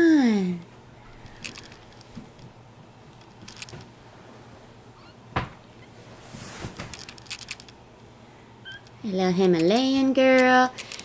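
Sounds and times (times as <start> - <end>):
rustling on a bedsheet: 6.0 - 7.1.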